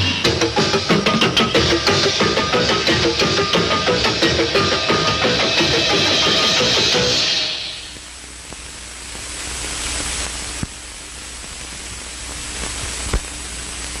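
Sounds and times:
closing music: 0.0s - 8.0s
analog recording hiss: 0.0s - 14.0s
faint high whine: 0.0s - 14.0s.

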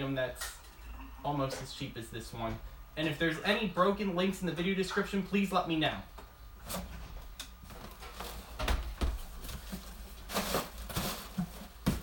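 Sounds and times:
dull thumps: 8.5s - 9.8s.

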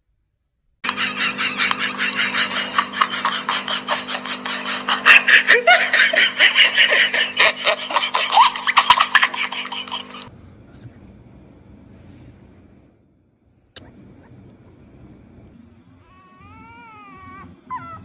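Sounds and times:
rapid high giggling: 0.8s - 10.3s
steady low hum: 0.8s - 18.0s.

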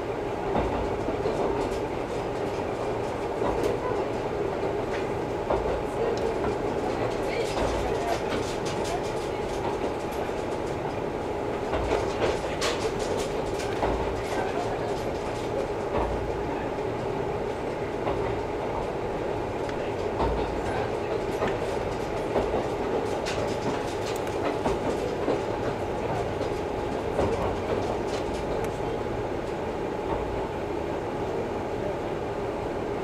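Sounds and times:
railcar engine and wheels rumbling: 0.0s - 33.0s
wheels clicking over rail joints: 4.9s - 11.0s, 11.6s - 16.3s, 19.6s - 28.8s.

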